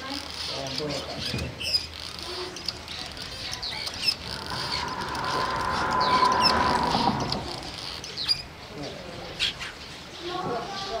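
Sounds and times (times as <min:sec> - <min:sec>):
steady hum: 0:04.0 - 0:08.3.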